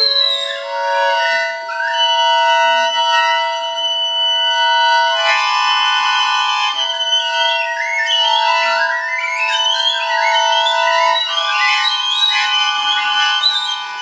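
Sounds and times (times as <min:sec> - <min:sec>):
recorder playing high notes: 0:00.0 - 0:14.0.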